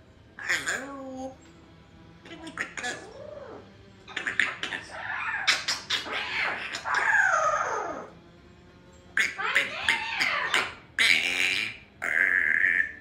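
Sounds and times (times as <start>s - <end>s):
parrot babbling and whistling: 0.4s - 1.4s, 2.2s - 8.1s, 9.2s - 13.0s
parrot long falling call: 4.2s - 8.1s.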